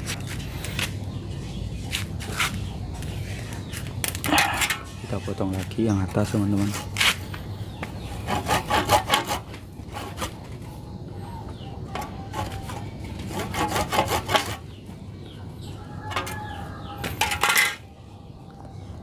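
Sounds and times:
hand saw cutting wood: 8.2s - 10.4s, 13.2s - 14.6s.

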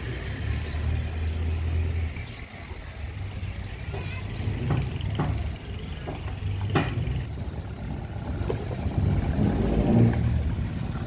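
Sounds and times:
engine humming: 0.0s - 11.0s
sharp knocks: 4.6s - 7.2s.

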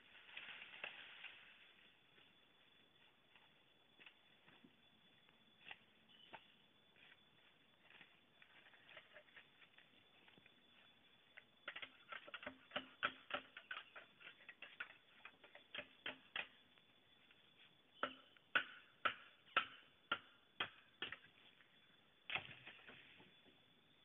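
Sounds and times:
machete chopping bamboo: 18.0s - 21.2s.

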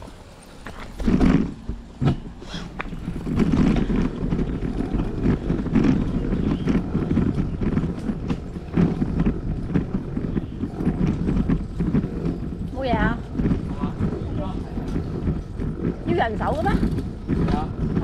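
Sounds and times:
bicycle clicks and rattles: 0.0s - 18.0s
wind buffeting microphone: 0.6s - 18.0s.

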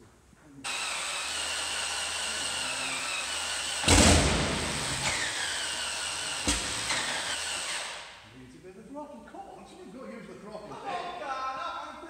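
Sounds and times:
electric starter whine: 0.7s - 8.1s
engine loud burst: 2.4s - 8.0s.

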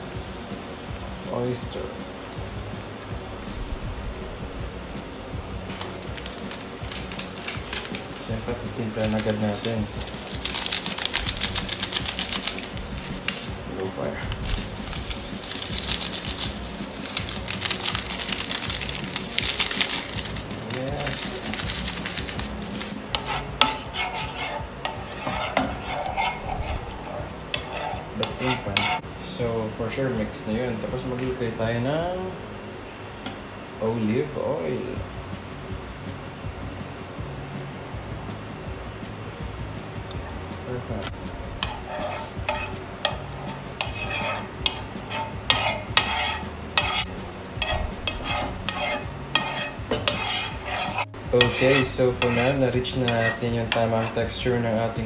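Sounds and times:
light sizzle: 0.0s - 55.0s
metal spoon scraping a frying pan: 5.7s - 29.0s, 41.0s - 55.0s.

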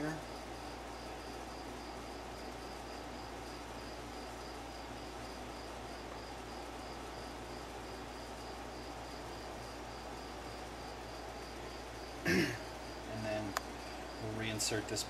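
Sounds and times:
background noise: 0.0s - 15.0s.

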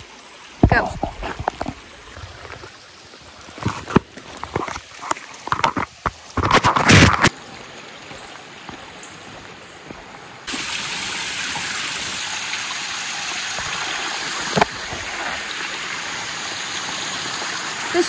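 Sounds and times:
creek water flowing: 0.0s - 18.0s
waterfall rushing: 7.2s - 18.0s.

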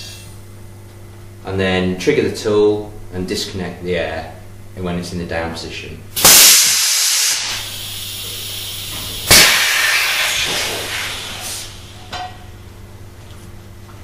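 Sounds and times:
compressed air hissing: 6.2s - 12.1s
loud burst of escaping air: 6.2s - 12.1s.

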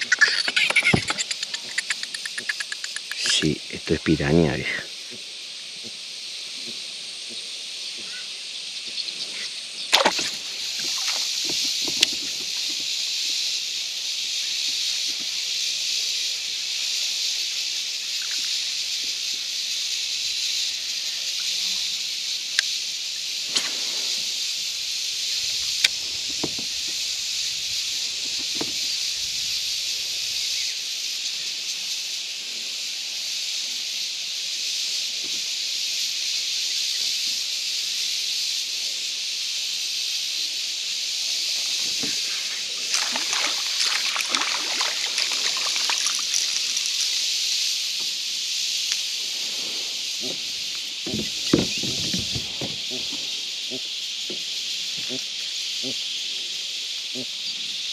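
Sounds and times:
insects droning: 0.0s - 57.9s
sharp knocks: 51.0s - 53.2s.

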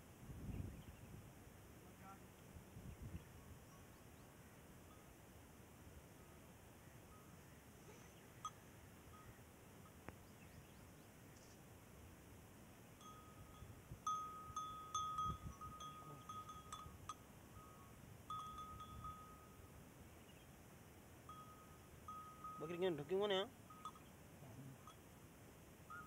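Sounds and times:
goat bell clinking: 13.0s - 19.7s, 21.3s - 25.1s.

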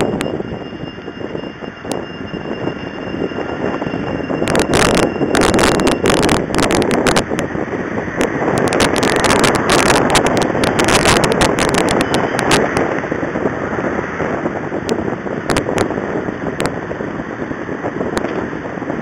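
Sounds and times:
road and engine noise: 0.0s - 19.0s
wind buffeting microphone: 0.0s - 19.0s
clicks and crackles: 8.2s - 12.9s.

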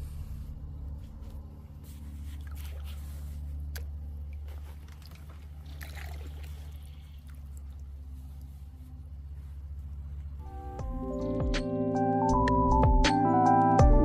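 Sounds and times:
steady low hum: 0.0s - 13.0s
paddle splashing water: 1.8s - 8.7s.

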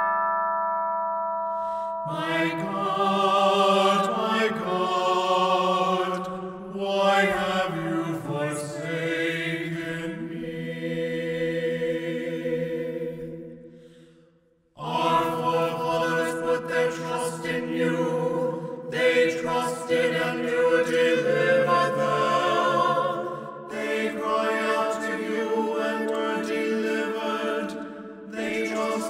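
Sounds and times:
slow chant-like singing: 1.7s - 29.0s.

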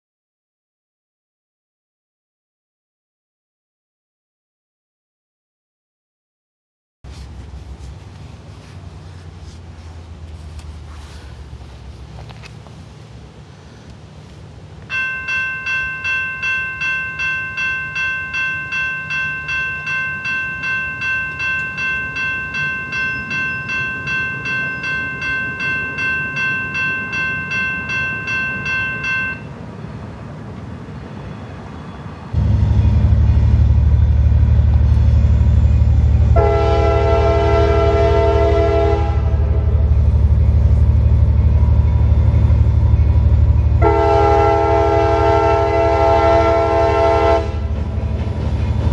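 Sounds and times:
loud low train rumble: 7.0s - 48.9s
railroad crossing bell ringing: 14.9s - 29.8s, 31.2s - 48.9s
locomotive horn blast: 32.4s - 40.2s, 43.7s - 47.9s.

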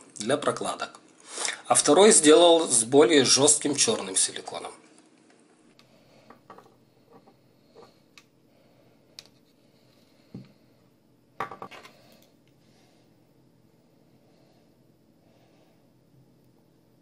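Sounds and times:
objects tapping on wooden table: 6.3s - 7.9s, 10.3s - 10.5s, 11.4s - 11.9s
knock on table: 11.4s - 11.8s
objects clattering: 11.4s - 12.0s.

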